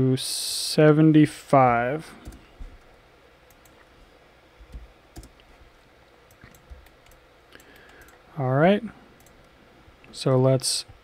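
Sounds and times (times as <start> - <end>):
low room hiss: 0.0 - 11.0
computer mouse clicks: 3.4 - 3.8, 4.7 - 5.5, 6.3 - 8.2, 9.2 - 9.5
keyboard clicks: 4.7 - 5.5, 6.3 - 8.2.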